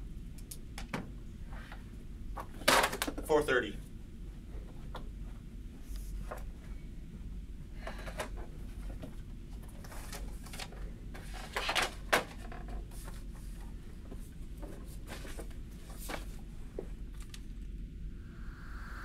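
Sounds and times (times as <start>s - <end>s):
low hum: 17.5s - 19.0s.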